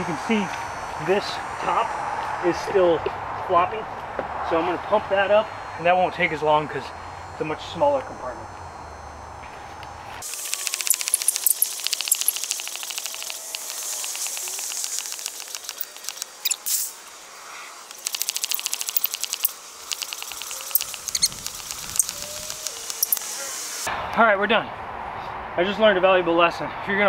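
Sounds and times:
hand air pump clicking and squeaking: 10.2 - 16.8, 17.9 - 23.2
air hissing: 10.2 - 23.9.

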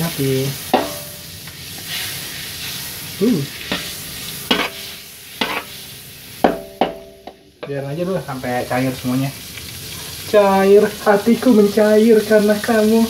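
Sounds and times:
oil sizzling in a wok: 0.0 - 13.0
spatula scraping a wok: 0.7 - 7.3.

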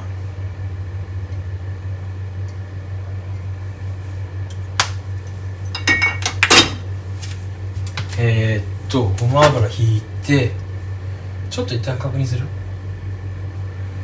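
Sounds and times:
kitchenware clinks and knocks: 5.8 - 6.8.

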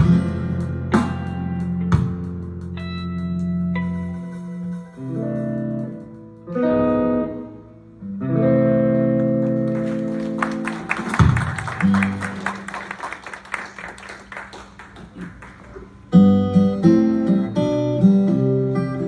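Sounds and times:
strummed acoustic guitar chords: 0.0 - 9.7, 15.9 - 19.0
guitar chord ringing: 2.5 - 10.4, 16.0 - 19.0
scattered clapping: 9.2 - 16.0.

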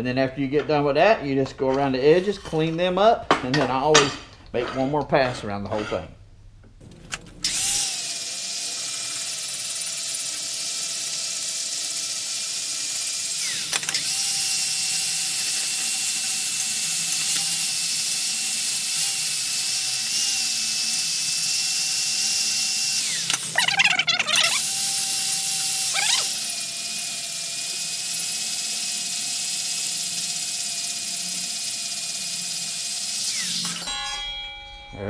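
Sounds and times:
angle grinder sanding metal: 7.5 - 34.2.

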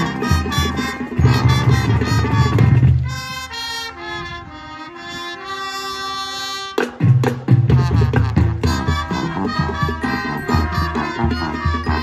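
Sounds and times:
drums: 0.0 - 3.7, 6.4 - 12.0
brass and woodwind chords: 0.0 - 12.0
marching band playing: 0.0 - 12.0.

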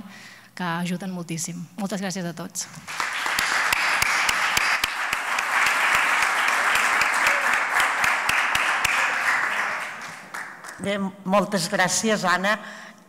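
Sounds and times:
audience applauding: 2.8 - 10.8
sharp regular claps: 2.8 - 10.9.

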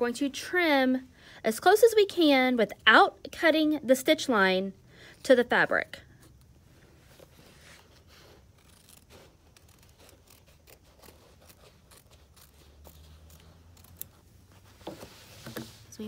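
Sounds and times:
scissors snipping fabric: 8.6 - 14.2.

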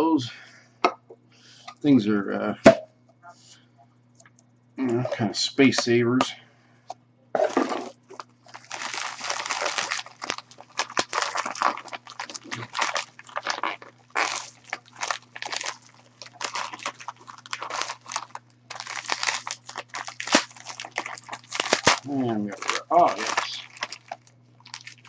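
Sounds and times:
plastic wrap crinkling: 7.4 - 25.0.

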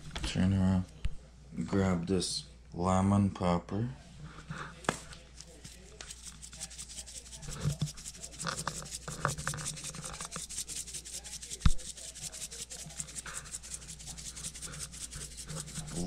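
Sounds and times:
seasoning shaker rattling: 5.5 - 16.0.

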